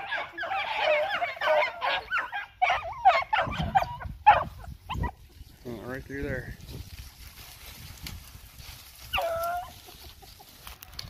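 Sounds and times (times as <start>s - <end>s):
beagles baying: 0.0s - 5.2s.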